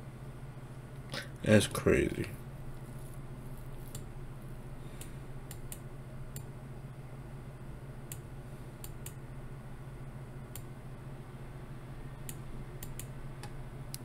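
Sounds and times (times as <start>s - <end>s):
steady low hum: 0.0s - 14.0s
computer mouse clicking: 3.8s - 4.1s, 5.5s - 6.5s, 8.8s - 9.2s, 12.2s - 14.0s.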